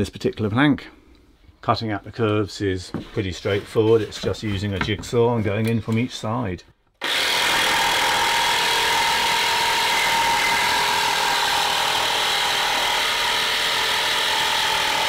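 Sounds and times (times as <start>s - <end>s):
jigsaw cutting wood: 7.0s - 15.0s.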